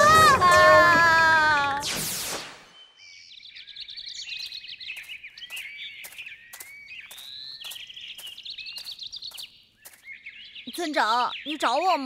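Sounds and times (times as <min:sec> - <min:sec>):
small birds chirping and trilling: 0:02.5 - 0:12.0.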